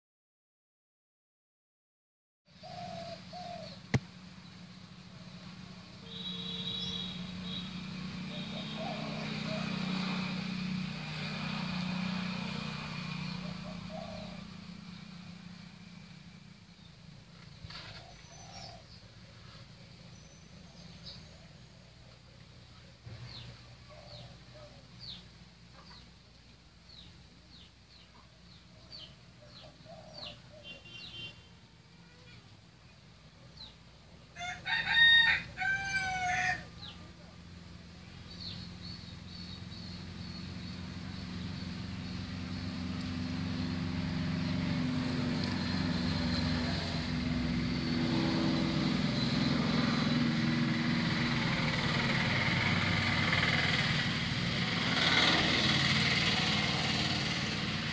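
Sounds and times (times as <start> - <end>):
engine hum: 2.5 - 57.9
bird chirps: 6.0 - 7.7, 26.9 - 31.5
rooster crowing: 34.4 - 37.0.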